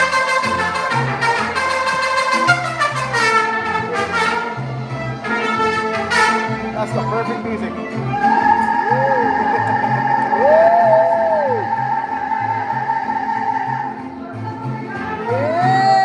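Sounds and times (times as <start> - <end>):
trumpets playing melody: 0.0 - 7.0
strummed guitar rhythm: 0.0 - 16.0
pulsing bass line: 7.8 - 14.2.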